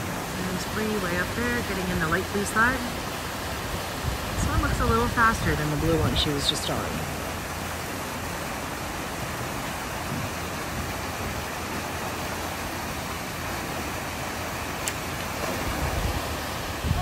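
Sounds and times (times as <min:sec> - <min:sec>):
water pouring and splashing: 0:00.0 - 0:17.0.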